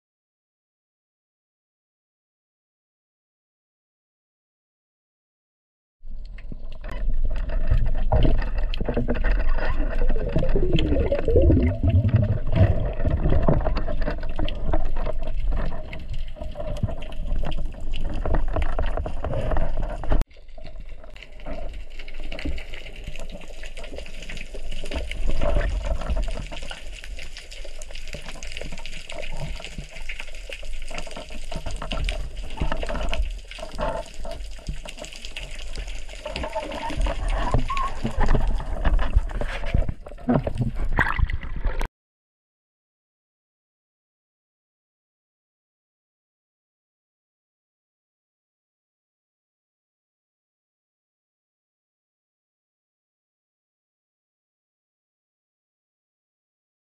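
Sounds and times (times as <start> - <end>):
churning underwater water: 6.0 - 41.9
knocks and clicks underwater: 6.1 - 41.9.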